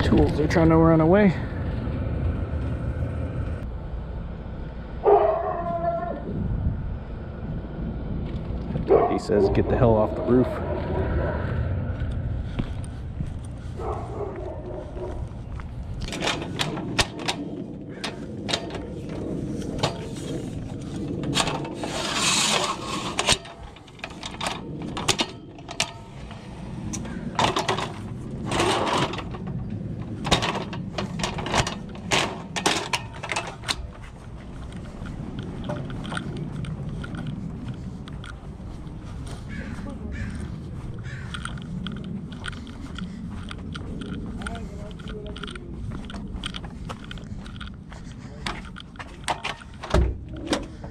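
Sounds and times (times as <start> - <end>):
steady low rumble: 0.0 - 50.9
ladder scraping: 13.5 - 38.5, 39.4 - 50.9
metal ladder clanking: 16.0 - 34.0, 48.5 - 50.9.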